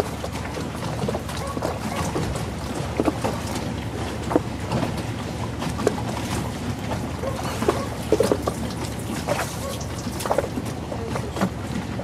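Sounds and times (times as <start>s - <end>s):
water slapping and splashing: 0.0s - 12.0s.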